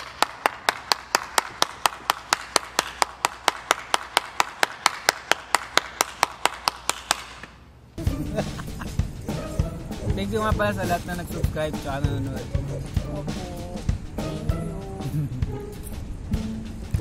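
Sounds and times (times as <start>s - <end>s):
person clapping hands: 0.0s - 7.6s
background sound: 7.6s - 17.0s.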